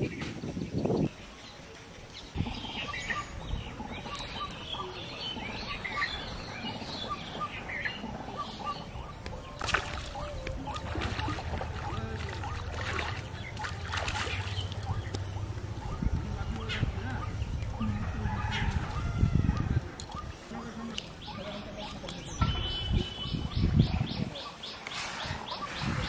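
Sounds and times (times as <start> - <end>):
birds chirping: 0.0 - 26.0
fish splashing in water: 9.5 - 15.5.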